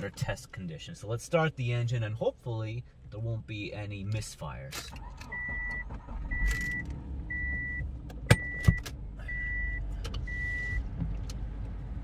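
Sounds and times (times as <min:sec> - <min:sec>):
car engine running: 0:04.9 - 0:12.0
car warning chime beeping: 0:05.2 - 0:10.8.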